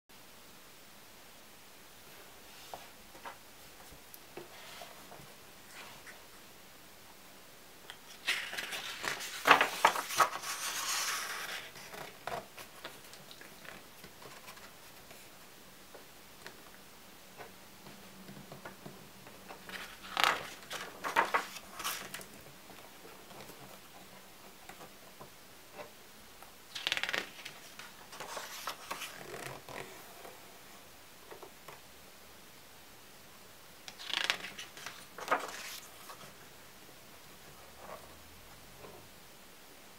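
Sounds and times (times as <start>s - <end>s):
album pages rustling: 7.9s - 16.8s, 17.4s - 26.0s, 26.7s - 30.4s, 33.8s - 36.6s.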